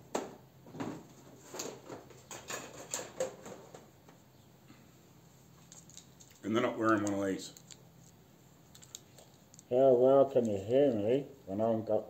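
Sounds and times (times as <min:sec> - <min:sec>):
small items clicking and knocking: 0:05.6 - 0:07.9, 0:08.7 - 0:09.7.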